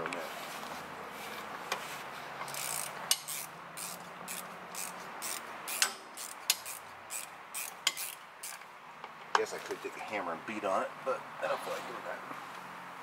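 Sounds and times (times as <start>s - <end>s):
wrench clicking on bolts: 2.4s - 8.6s.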